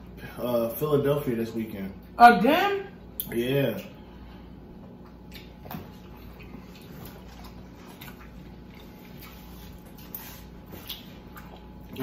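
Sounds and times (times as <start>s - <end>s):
low steady hum: 0.0s - 12.0s
wet chewing and mouth smacks: 4.8s - 12.0s.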